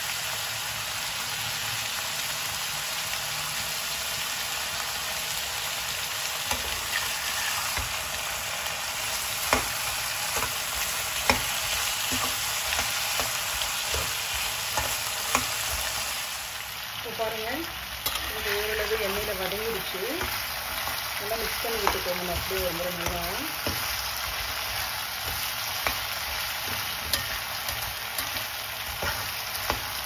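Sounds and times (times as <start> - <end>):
vegetables sizzling in oil: 0.0 - 30.0
metal spatula scraping a pan: 6.5 - 8.1, 9.2 - 16.1, 18.0 - 19.2, 21.6 - 30.0.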